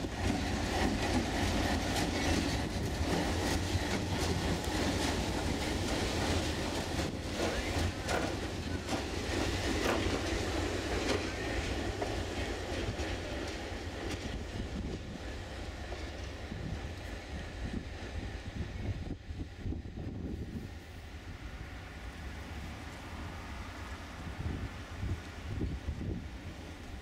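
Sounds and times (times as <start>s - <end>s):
wheels clicking over rail joints: 0.0s - 17.2s
diesel locomotive engine rumbling: 0.0s - 27.0s.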